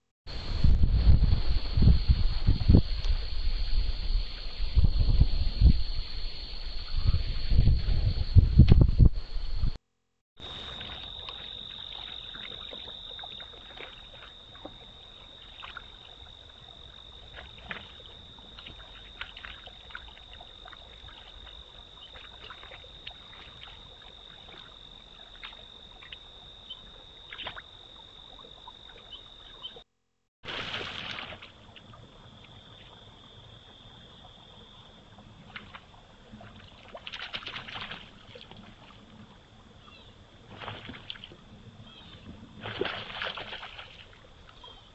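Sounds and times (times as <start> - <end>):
low rumble: 0.3 - 9.8
water splashes and clicks: 10.5 - 16.3, 17.3 - 26.3, 27.3 - 29.1, 30.4 - 33.0, 35.4 - 39.3, 40.5 - 41.4, 42.6 - 44.7.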